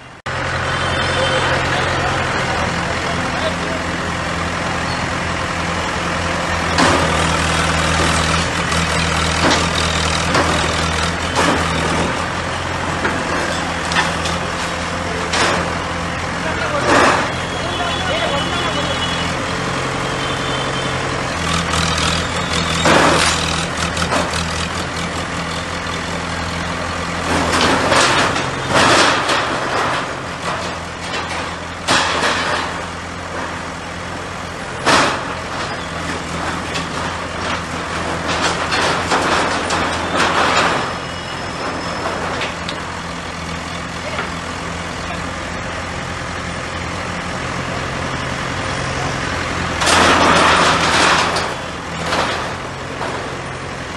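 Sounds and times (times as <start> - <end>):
diesel engine running: 0.0 - 53.9
sheet metal and debris crashing: 27.2 - 32.9, 36.3 - 42.6, 49.8 - 53.4.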